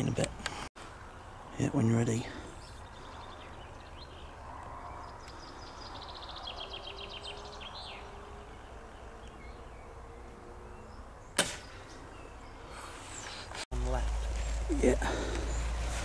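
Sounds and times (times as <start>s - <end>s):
songbird singing: 0.0s - 16.0s
air rifle shot: 11.4s - 11.8s.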